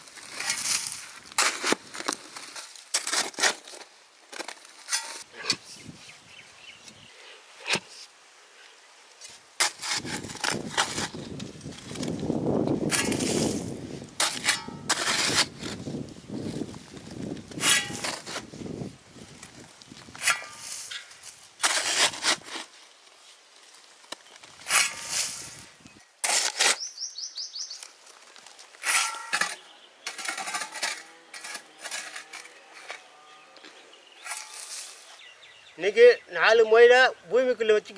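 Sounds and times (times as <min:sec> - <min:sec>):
soil and stones scraping: 0:00.0 - 0:36.5
digging tool striking stony earth: 0:00.2 - 0:05.7, 0:09.6 - 0:15.9, 0:17.5 - 0:18.5, 0:20.1 - 0:22.8, 0:24.5 - 0:26.9, 0:28.8 - 0:33.1.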